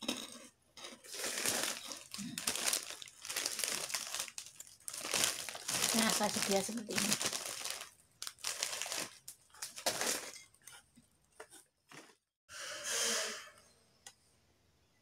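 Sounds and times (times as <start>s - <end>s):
plastic bag crinkling: 1.0s - 10.4s.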